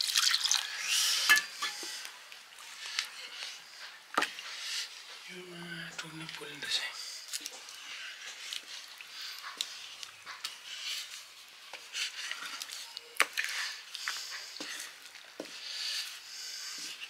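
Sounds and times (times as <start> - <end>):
wet scraping and squelching: 6.0 - 17.0.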